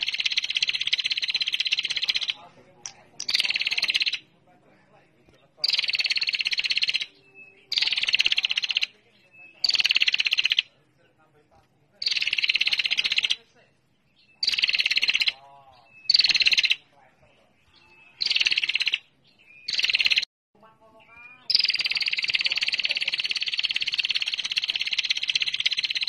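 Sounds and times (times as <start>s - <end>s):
bird buzzy trill: 0.0s - 2.4s, 3.2s - 4.2s, 5.6s - 10.7s, 12.0s - 13.4s, 14.3s - 16.8s, 18.1s - 20.3s, 21.4s - 26.0s.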